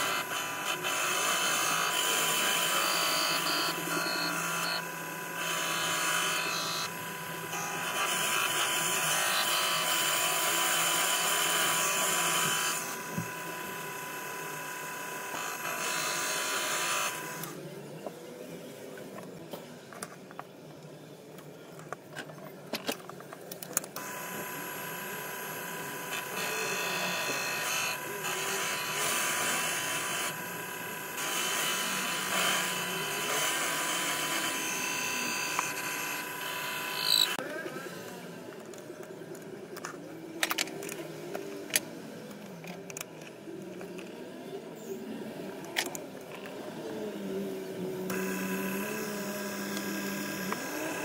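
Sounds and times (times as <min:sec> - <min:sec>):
lathe tool cutting steel: 0:00.0 - 0:17.6, 0:24.0 - 0:37.4
lathe motor whine: 0:00.0 - 0:19.4, 0:24.0 - 0:40.1, 0:40.8 - 0:51.0.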